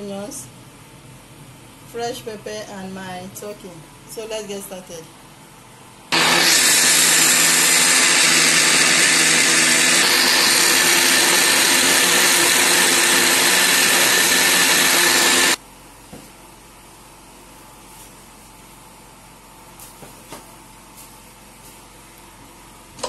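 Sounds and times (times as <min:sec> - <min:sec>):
electric blender running: 0:06.1 - 0:15.6.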